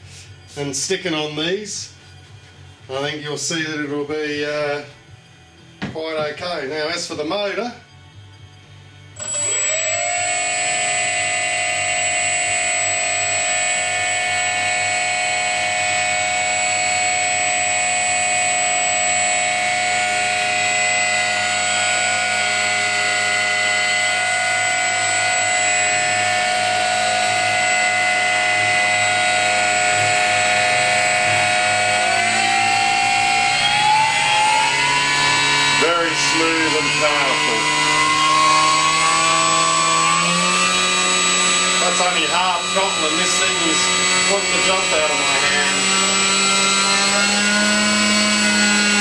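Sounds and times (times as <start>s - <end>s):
electric motor propeller whine: 7.9s - 49.0s.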